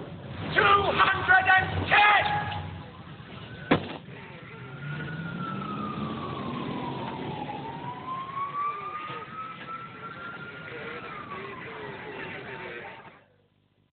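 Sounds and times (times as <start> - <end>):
fire engine siren wailing: 2.2 - 13.1
low rising drone: 4.4 - 12.9.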